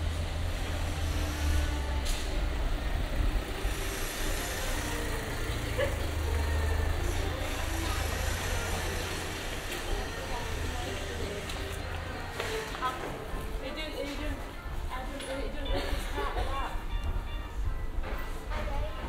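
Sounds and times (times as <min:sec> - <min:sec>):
large vehicle engine humming: 0:00.0 - 0:13.6
voices of passers-by: 0:00.0 - 0:19.0.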